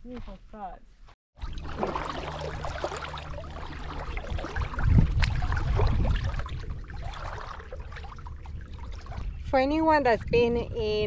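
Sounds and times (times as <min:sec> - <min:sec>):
seawater lapping and trickling: 0:01.4 - 0:09.8
low rumble: 0:01.4 - 0:11.0.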